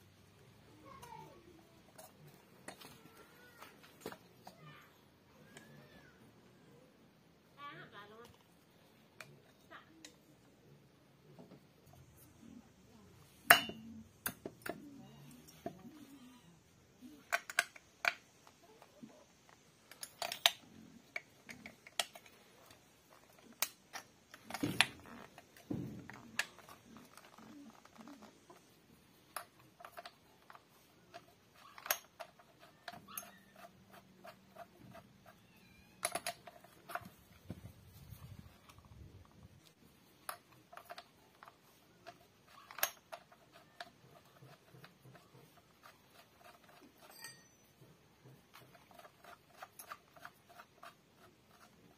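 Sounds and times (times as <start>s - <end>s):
metal parts clicking and clinking: 19.5s - 28.2s, 29.3s - 37.4s.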